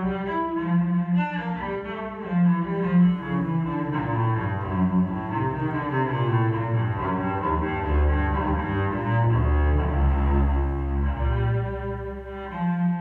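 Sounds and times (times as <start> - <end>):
cello playing: 0.0 - 13.0.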